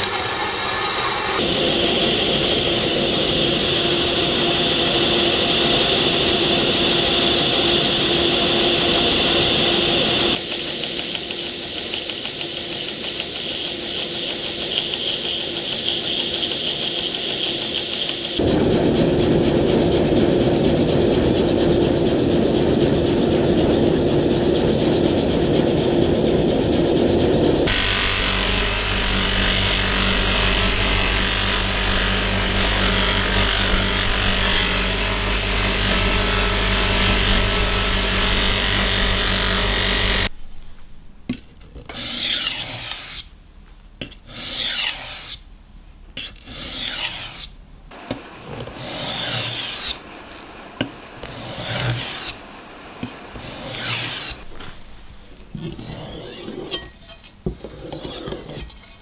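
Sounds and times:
rasping strokes by hand: 10.4s - 40.3s, 44.3s - 45.4s, 46.2s - 47.6s, 48.5s - 50.0s, 51.2s - 52.4s, 53.4s - 54.5s
motor grinder running: 27.6s - 40.3s.

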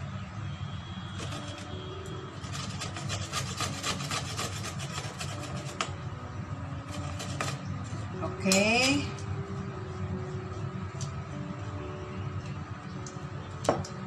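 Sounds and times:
pumpkin rasping on metal grater: 1.2s - 1.8s, 2.4s - 5.9s, 6.9s - 7.6s.

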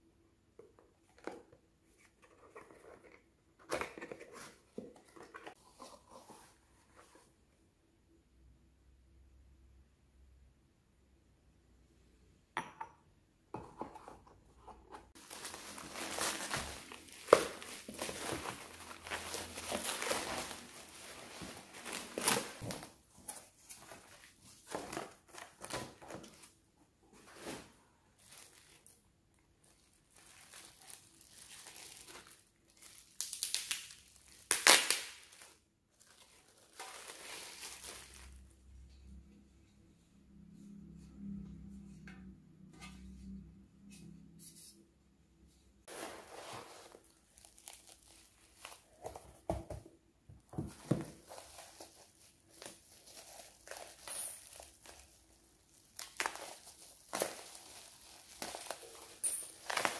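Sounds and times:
plastic wrapping crinkling: 15.1s - 26.4s, 28.2s - 29.0s, 29.6s - 38.5s, 45.9s - 49.3s, 50.8s - 59.9s
cardboard tearing: 15.2s - 22.8s.

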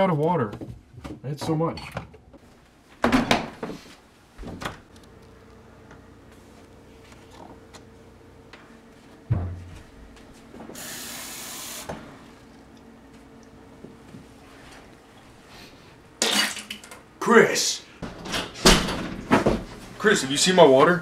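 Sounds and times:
dull thump: 9.3s - 9.8s
faucet running water into cup: 10.8s - 11.9s.

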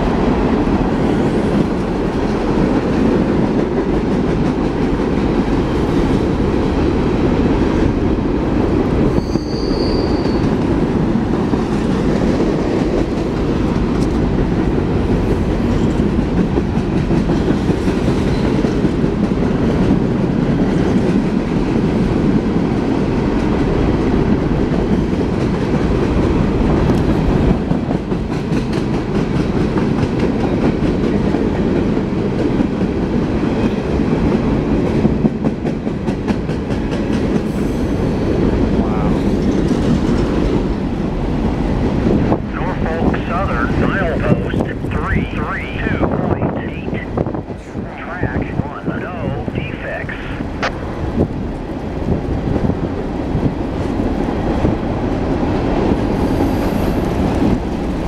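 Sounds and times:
train wheels rumbling on rails: 0.0s - 45.0s, 49.0s - 58.0s
high wheel squeal: 9.1s - 10.5s.

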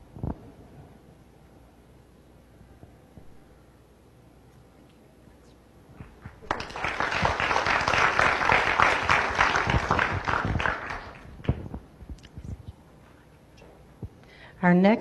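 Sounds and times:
audience applauding: 6.3s - 11.6s.

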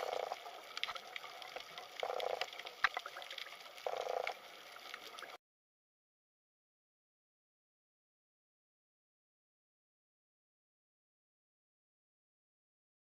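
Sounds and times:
underwater clicks and crackles: 0.0s - 5.4s.

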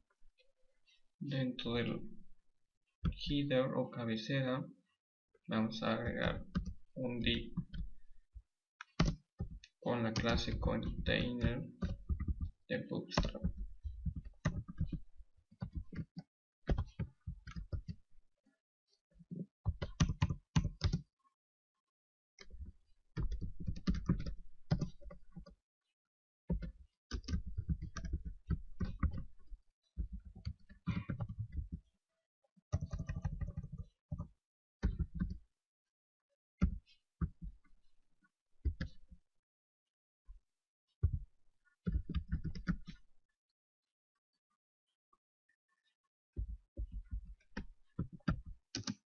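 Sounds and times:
computer keyboard typing: 8.8s - 12.5s, 13.2s - 15.0s, 15.6s - 18.0s, 19.7s - 21.0s, 23.2s - 25.5s, 26.5s - 29.4s, 32.7s - 34.2s, 34.8s - 35.4s, 41.9s - 43.0s, 47.0s - 49.0s.

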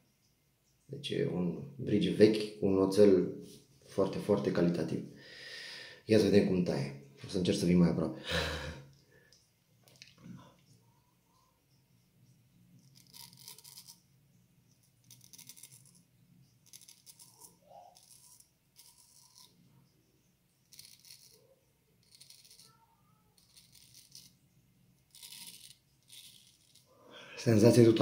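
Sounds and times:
straight razor scraping stubble: 12.8s - 14.0s, 15.0s - 16.0s, 16.6s - 19.6s, 20.7s - 21.4s, 22.0s - 24.4s, 25.0s - 26.9s.

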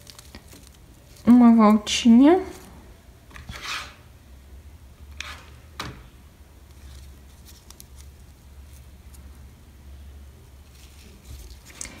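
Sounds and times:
ribbon rustling and scraping: 0.0s - 4.0s, 5.1s - 5.6s, 6.6s - 9.6s, 10.4s - 12.0s
low steady hum: 0.0s - 12.0s
short sharp scrapes: 3.5s - 4.0s.

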